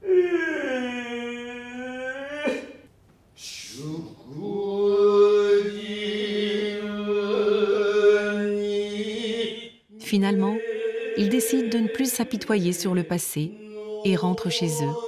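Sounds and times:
stage chanting voice: 0:03.7 - 0:15.0.

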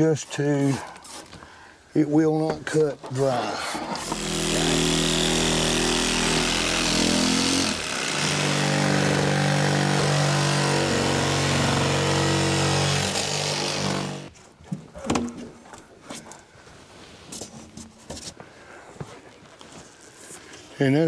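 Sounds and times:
power saw cutting: 0:03.2 - 0:14.3.

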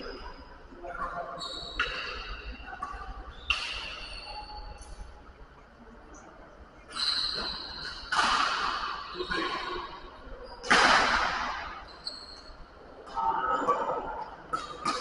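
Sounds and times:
racket hitting shuttlecock: 0:08.0 - 0:08.8, 0:10.6 - 0:11.6.

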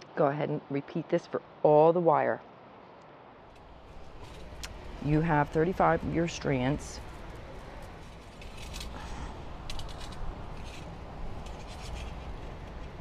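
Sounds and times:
low steady background hum: 0:00.0 - 0:13.0
wire and beads rustling: 0:03.5 - 0:13.0.

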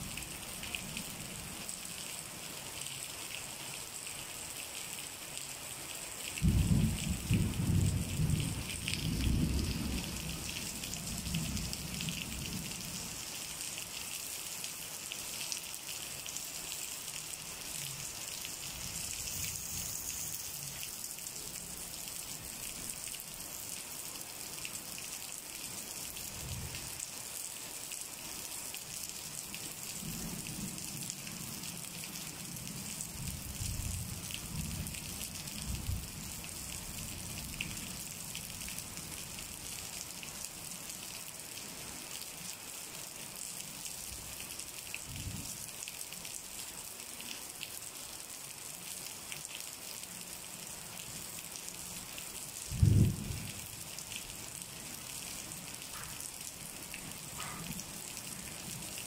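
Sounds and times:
steady rain falling: 0:00.0 - 0:59.0
distant thunder rumbling: 0:06.4 - 0:12.1, 0:52.7 - 0:53.6.

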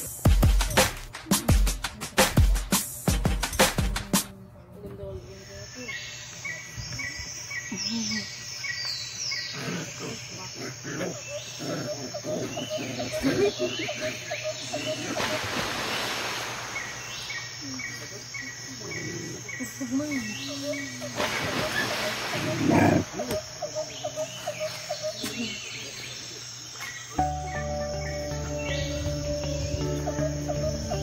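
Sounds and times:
insects chirping: 0:04.5 - 0:31.0
puppies growling: 0:09.4 - 0:15.2, 0:18.8 - 0:19.8, 0:22.4 - 0:23.3.

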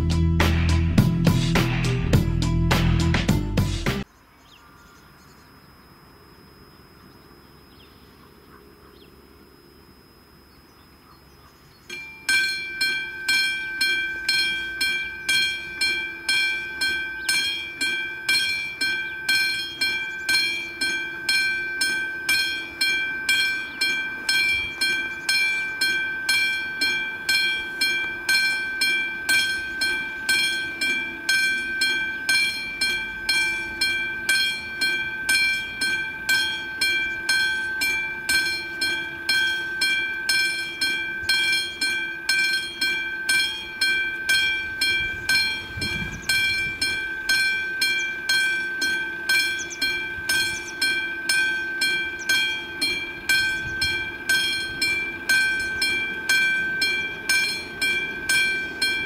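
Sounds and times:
level crossing bell ringing: 0:11.9 - 0:59.0.

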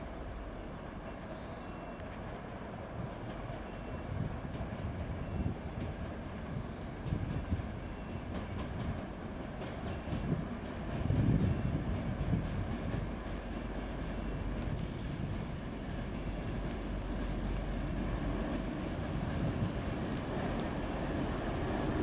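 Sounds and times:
diesel locomotive engine rumbling: 0:00.0 - 0:22.0
train wheels thumping over track: 0:07.0 - 0:22.0.

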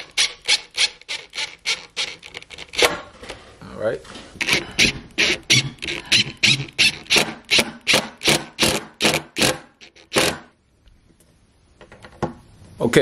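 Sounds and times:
impact driver driving a screw: 0:00.0 - 0:03.0, 0:04.4 - 0:10.5.

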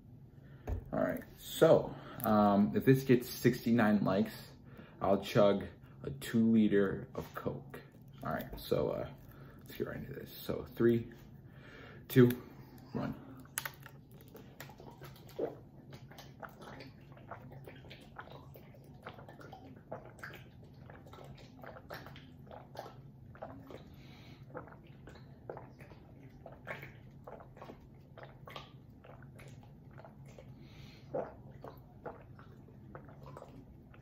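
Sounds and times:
person gulping water: 0:07.0 - 0:34.0.

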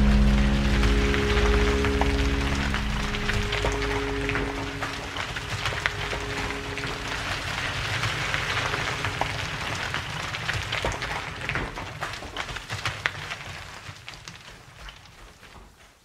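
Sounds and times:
car engine rumbling: 0:00.0 - 0:07.9.

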